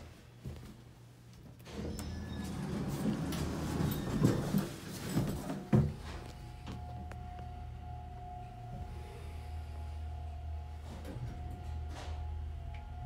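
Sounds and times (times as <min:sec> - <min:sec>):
elevator hum: 0:01.6 - 0:13.0
elevator whine: 0:01.6 - 0:13.0
elevator clunks and rattles: 0:01.7 - 0:06.2.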